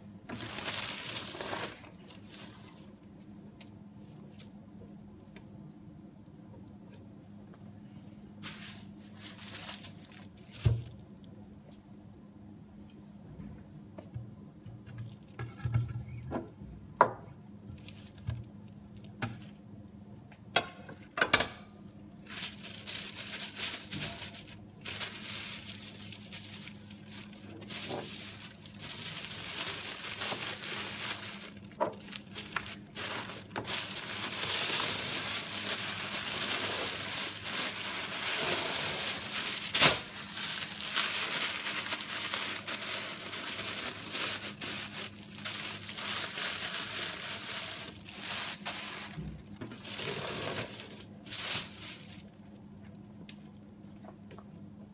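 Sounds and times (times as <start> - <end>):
paper rustling and crinkling: 0.3 - 3.3, 8.4 - 11.1, 17.7 - 19.6, 22.2 - 52.4.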